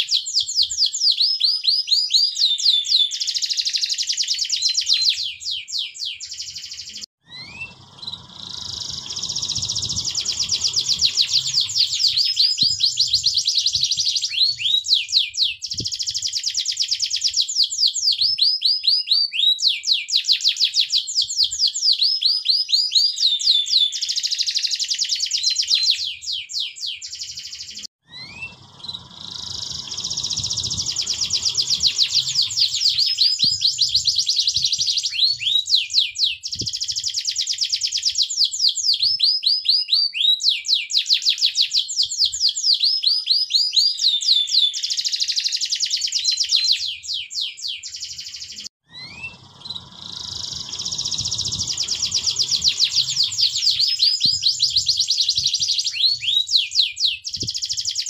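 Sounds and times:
canary singing trills: 0:00.0 - 0:37.9, 0:42.4 - 0:58.0.

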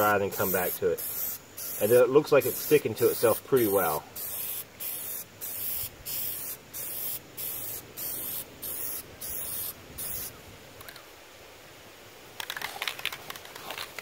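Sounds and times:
aerosol can spraying: 0:00.3 - 0:10.3.

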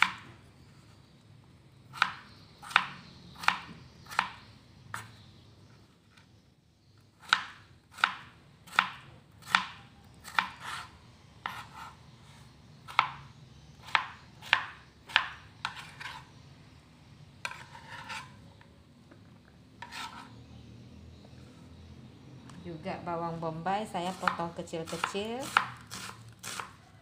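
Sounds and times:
knife chopping on cutting board: 0:01.9 - 0:05.1, 0:07.2 - 0:12.0, 0:12.9 - 0:13.2, 0:13.8 - 0:16.2, 0:17.4 - 0:18.3, 0:19.8 - 0:20.3, 0:24.0 - 0:26.8
knife scraping: 0:10.2 - 0:13.0, 0:14.4 - 0:16.4, 0:17.4 - 0:18.6, 0:19.8 - 0:20.5, 0:24.0 - 0:26.8.

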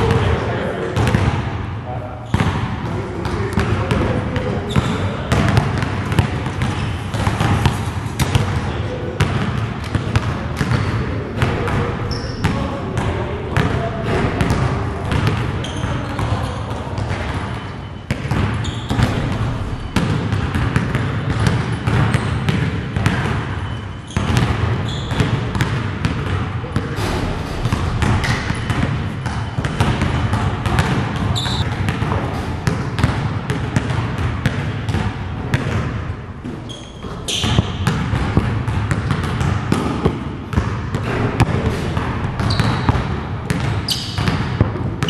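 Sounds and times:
basketballs bouncing on gym floor: 0:00.0 - 0:45.0.

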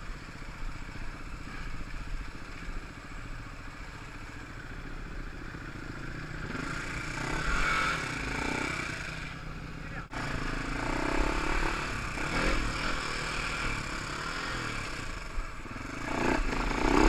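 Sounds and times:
dirt bike engine revving: 0:05.6 - 0:17.0.

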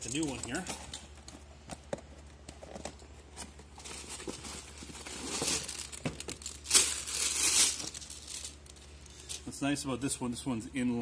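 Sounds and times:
plastic bag crinkling: 0:03.7 - 0:09.4.

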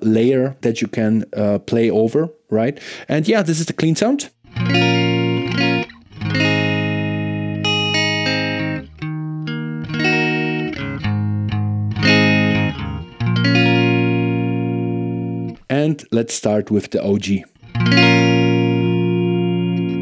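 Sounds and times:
clean electric guitar chords: 0:04.5 - 0:15.6, 0:17.6 - 0:20.0.

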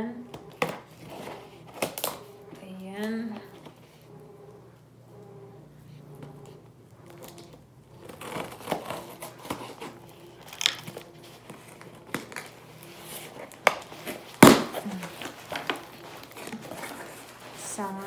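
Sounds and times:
tape and cardboard crinkling: 0:00.3 - 0:04.0, 0:06.4 - 0:18.0
scissors cutting cardboard box: 0:00.5 - 0:02.2, 0:07.2 - 0:17.6
cardboard snap: 0:13.5 - 0:16.6.

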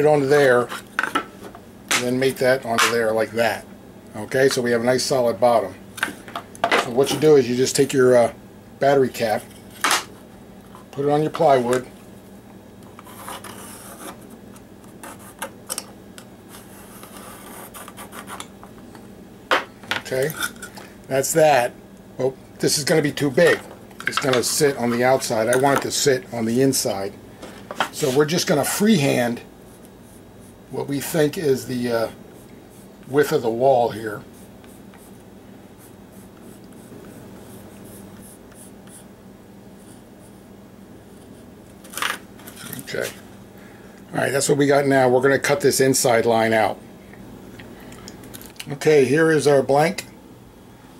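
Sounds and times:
pencil scratching on plywood: 0:13.0 - 0:14.2, 0:15.0 - 0:15.5, 0:16.6 - 0:18.4, 0:35.8 - 0:39.1.

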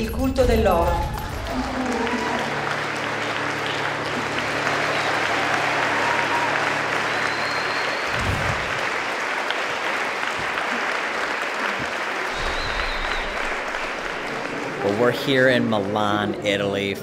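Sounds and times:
audience applauding: 0:00.9 - 0:17.0.

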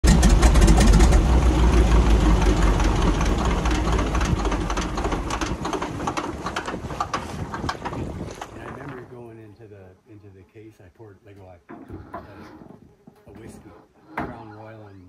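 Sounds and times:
engine low rumble: 0:00.0 - 0:07.6.

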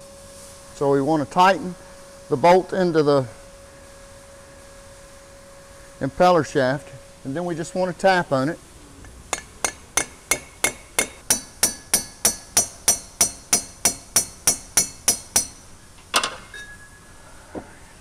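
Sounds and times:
metallic clank ringing: 0:09.3 - 0:17.1
hammer tapping on steel bolt: 0:09.4 - 0:15.6.

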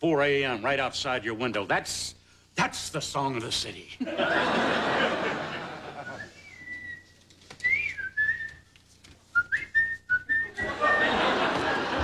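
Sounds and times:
audience laughter: 0:04.0 - 0:06.4, 0:10.4 - 0:12.0
person whistling a tune: 0:06.0 - 0:08.7, 0:09.3 - 0:11.0.

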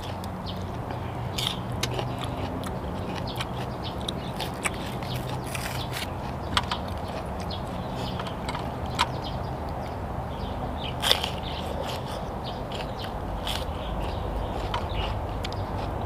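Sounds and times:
crisp crunching of pepper: 0:11.0 - 0:15.2.

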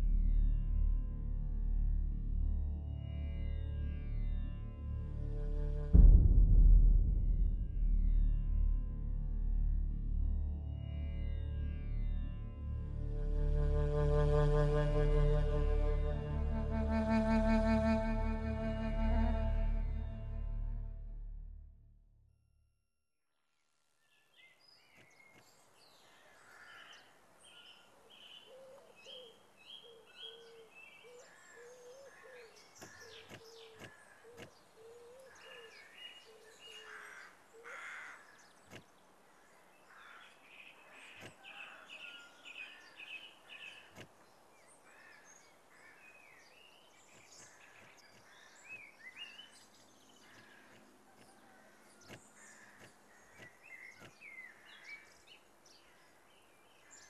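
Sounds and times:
birds calling and chirping: 0:24.8 - 0:57.0.

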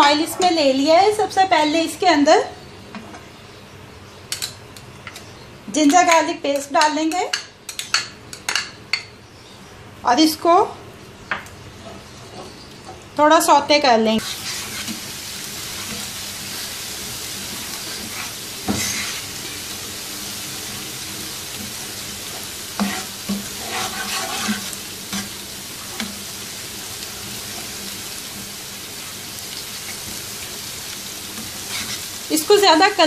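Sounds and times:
paste sizzling in hot oil: 0:14.2 - 0:33.0
spoon scraping and knocking pan: 0:17.4 - 0:19.6, 0:22.3 - 0:26.2, 0:31.3 - 0:32.1.

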